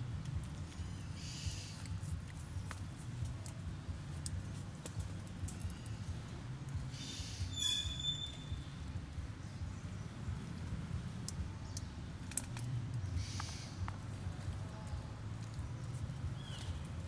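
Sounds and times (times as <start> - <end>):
soft scratchy rustle: 0.2 - 6.9
steady low rumble: 8.4 - 17.0.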